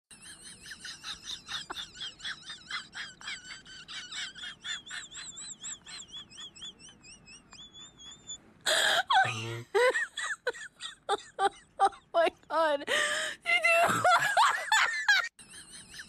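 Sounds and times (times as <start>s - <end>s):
high bird-like chirping: 5.2s - 8.4s.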